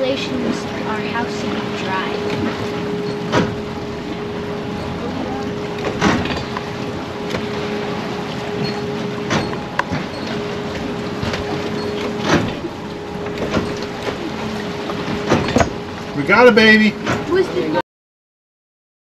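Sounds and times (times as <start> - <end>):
boat mechanical hum: 0.0 - 17.8
water splashing against boat: 0.0 - 17.8.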